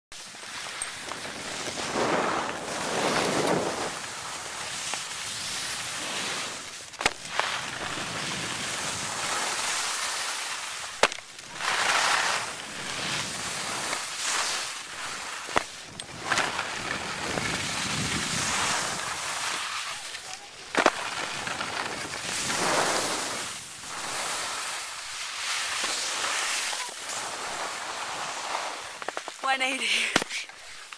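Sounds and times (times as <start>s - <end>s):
skis scraping over snow: 0.2s - 30.9s
wind on microphone: 16.0s - 19.4s.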